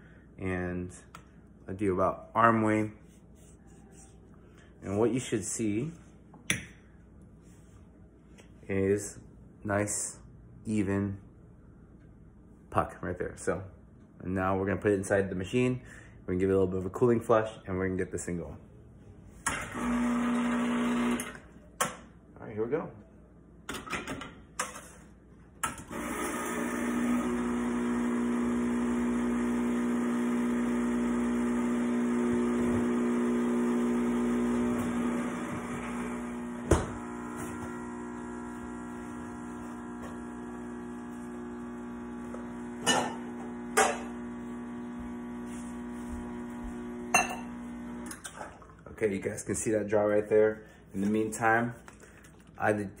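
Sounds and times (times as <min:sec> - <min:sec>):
espresso machine pump humming: 0:19.7 - 0:21.4, 0:25.9 - 0:48.2.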